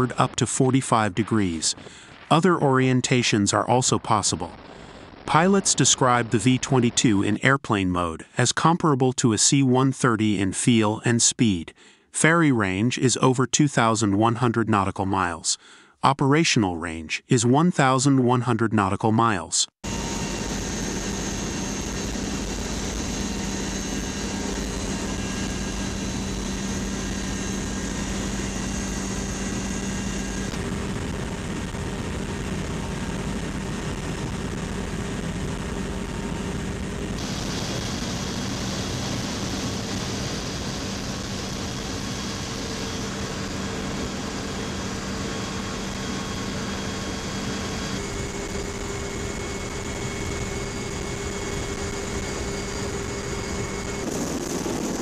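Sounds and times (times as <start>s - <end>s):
tilt-rotor aircraft droning: 19.8s - 55.0s.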